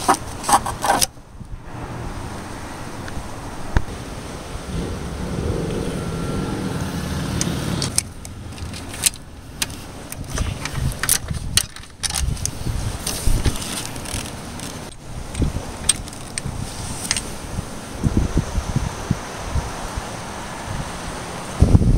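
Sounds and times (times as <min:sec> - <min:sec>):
wrench clinking on metal parts: 0:07.8 - 0:12.6
rustling handling noise: 0:07.8 - 0:17.4.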